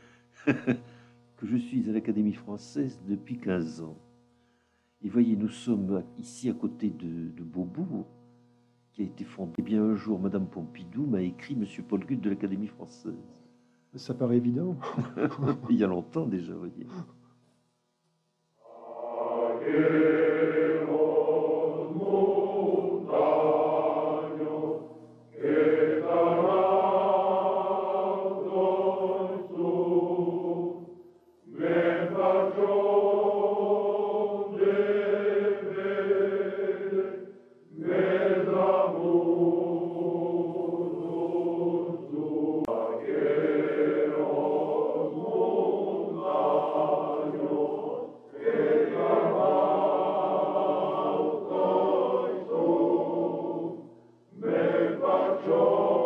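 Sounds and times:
choir singing: 18.6 - 56.0.

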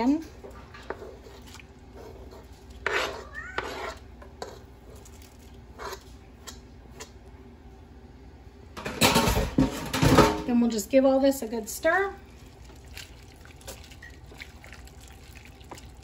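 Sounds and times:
fork scraping cutting board: 2.0 - 5.0, 5.8 - 6.1
cat meowing: 3.1 - 4.0.

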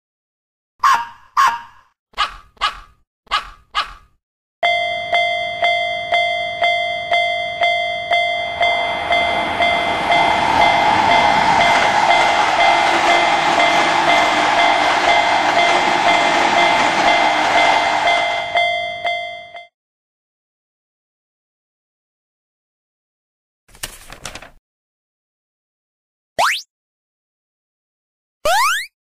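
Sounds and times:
dog barking: 0.8 - 4.1
railroad crossing bell ringing: 4.6 - 19.7
train passing rumble: 7.0 - 19.4.

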